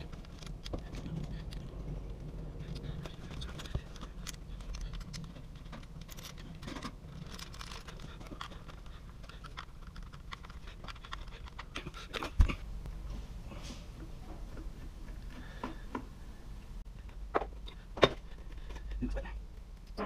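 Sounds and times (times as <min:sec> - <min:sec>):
clicks and scrapes of parts: 0:00.0 - 0:12.6.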